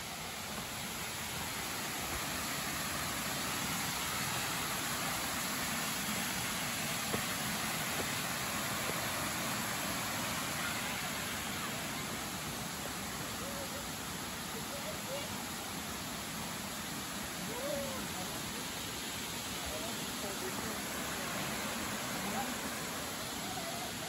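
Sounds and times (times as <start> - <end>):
waterfall rushing: 0.0 - 24.0.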